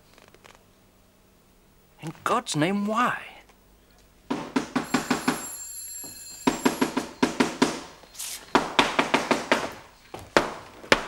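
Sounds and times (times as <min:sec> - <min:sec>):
sharp knock: 0:04.3 - 0:05.4
electric doorbell rattling: 0:04.9 - 0:07.2.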